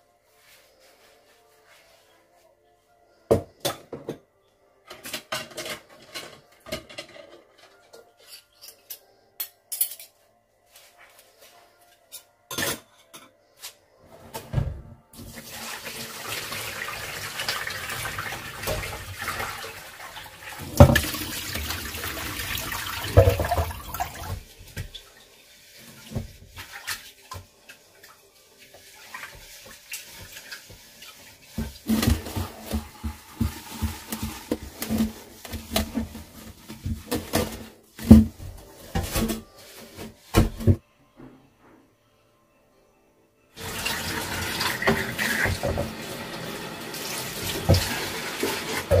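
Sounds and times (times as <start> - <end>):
kitchen tap running: 15.2 - 24.4, 29.3 - 37.1, 43.6 - 49.0.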